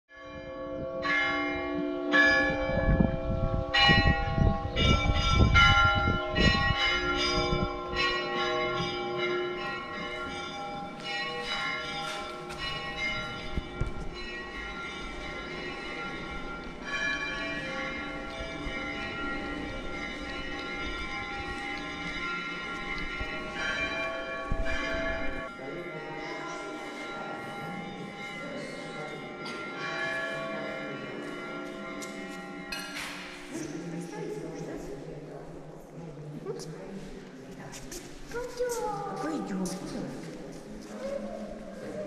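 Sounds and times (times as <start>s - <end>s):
church bells pealing: 0.1s - 37.2s, 38.6s - 42.0s
deep large bell strikes: 0.3s - 22.0s.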